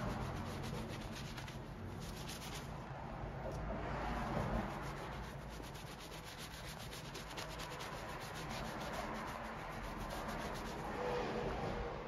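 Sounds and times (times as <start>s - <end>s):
brush scrubbing a boot: 0.0s - 2.8s, 4.4s - 11.0s.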